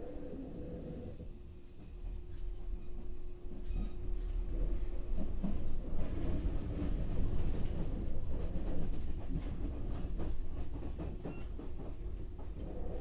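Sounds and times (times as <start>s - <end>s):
train low rumble: 0.0s - 13.0s.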